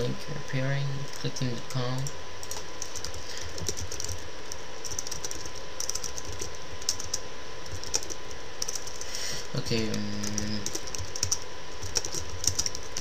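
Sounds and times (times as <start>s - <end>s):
steady background hiss: 0.0s - 13.0s
keyboard typing clicks: 2.0s - 9.0s, 9.8s - 13.0s.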